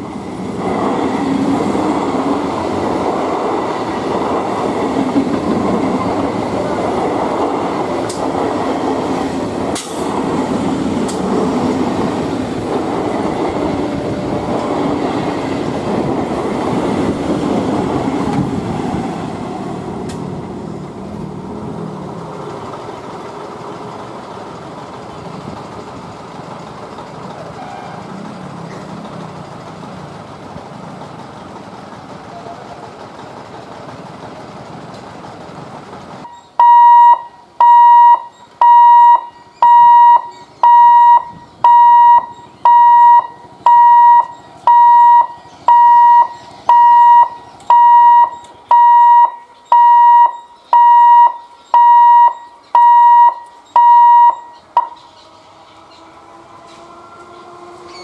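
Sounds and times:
electric train rumbling on track: 0:00.0 - 0:58.0
electronic warning alarm beeping: 0:36.3 - 0:55.1.

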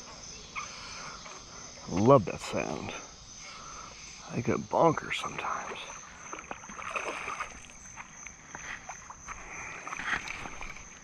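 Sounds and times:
high insect trill: 0:00.0 - 0:11.0
fish splashing at water surface: 0:06.2 - 0:07.8.

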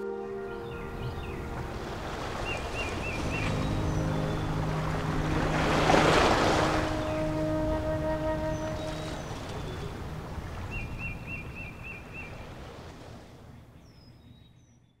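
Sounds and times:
bird chirping: 0:00.0 - 0:05.4
sea ambience: 0:00.0 - 0:14.4.

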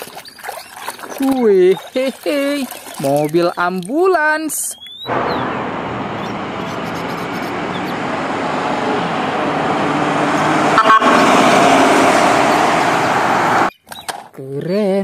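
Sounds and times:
ambulance engine and road noise: 0:05.1 - 0:13.7
steady horn tones: 0:05.1 - 0:13.7.

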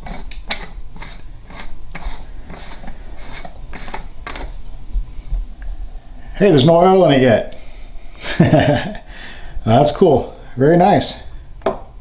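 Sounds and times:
metal threads scraping: 0:00.0 - 0:04.9.

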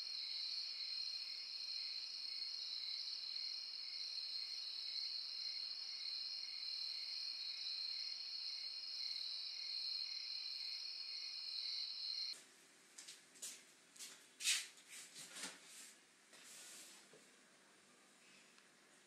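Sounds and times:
crickets chirring: 0:00.0 - 0:12.4.

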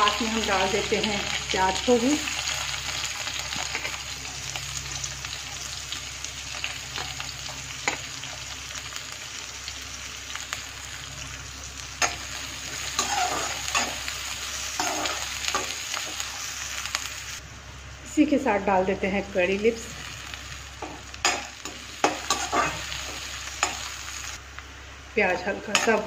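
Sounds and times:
food sizzling in hot oil: 0:00.0 - 0:26.0
metal spatula scraping a pan: 0:12.8 - 0:14.0, 0:20.8 - 0:23.8.

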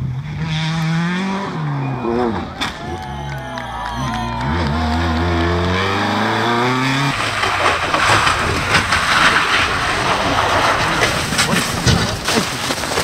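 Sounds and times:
rally car engine revving: 0:00.0 - 0:13.0
rough rushing noise: 0:04.5 - 0:13.0.

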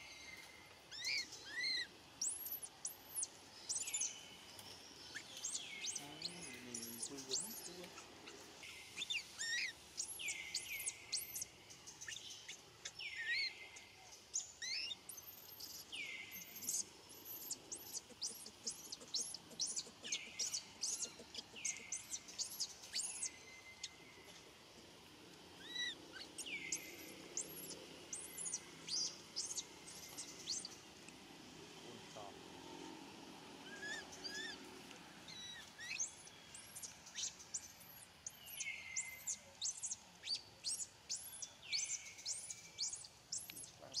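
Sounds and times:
baby monkey screaming: 0:00.9 - 0:02.5, 0:25.6 - 0:26.4, 0:33.6 - 0:34.6, 0:35.3 - 0:36.1.

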